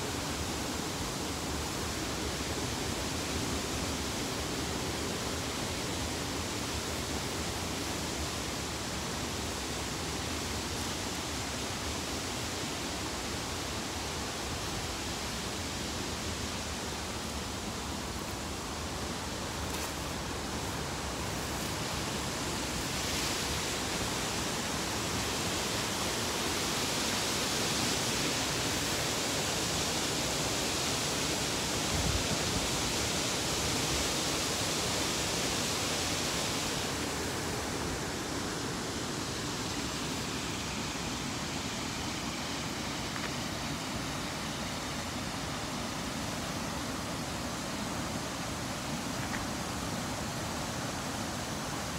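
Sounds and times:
water rushing over rapids: 0:00.0 - 0:51.9.

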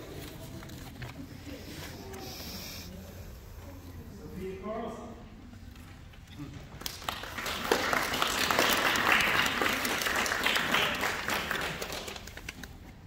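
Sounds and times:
audience applauding: 0:06.8 - 0:12.8.

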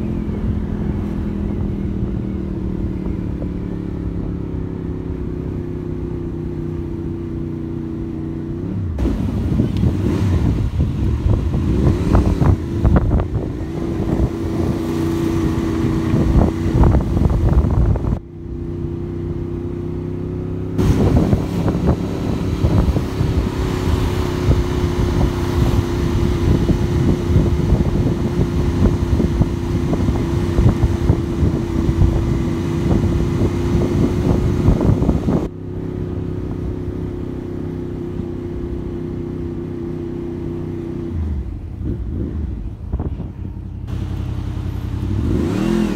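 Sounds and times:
motorcycle engine running: 0:00.0 - 0:45.9
wind rushing over microphone: 0:08.7 - 0:18.2, 0:20.8 - 0:35.5, 0:41.0 - 0:45.9.

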